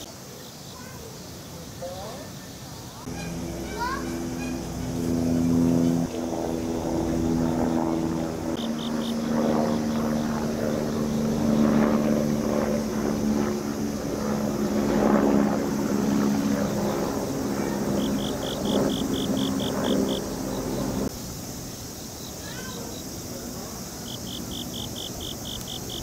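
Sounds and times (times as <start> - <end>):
engine drone: 3.0 - 21.3.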